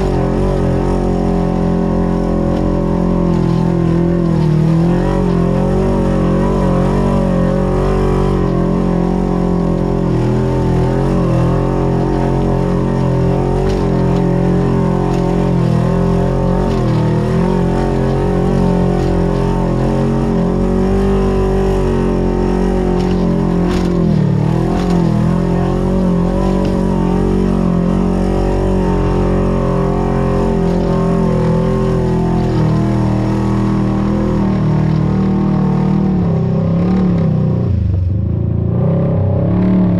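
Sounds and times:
off-road vehicle engine running: 0.0s - 39.9s.

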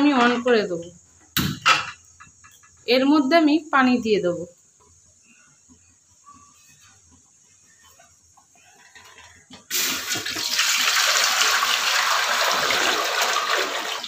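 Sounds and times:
water pouring into metal pot: 9.7s - 14.0s.

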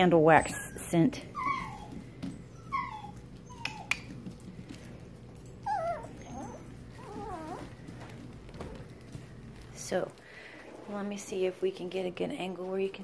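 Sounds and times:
puppies whining and yipping: 0.3s - 4.2s, 5.5s - 8.0s.

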